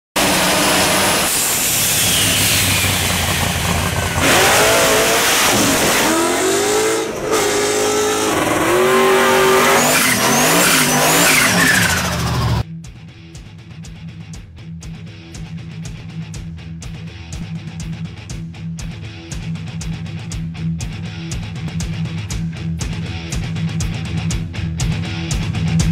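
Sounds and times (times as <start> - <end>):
car engines revving hard: 0.2 - 12.6
loud exhaust noise: 0.2 - 12.6
tyre squeal: 1.1 - 3.3, 5.3 - 12.6.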